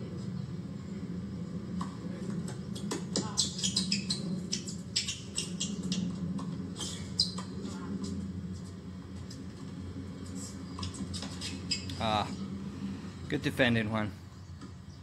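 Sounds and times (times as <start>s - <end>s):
sneakers squeaking on court: 2.5s - 7.7s, 10.4s - 12.0s.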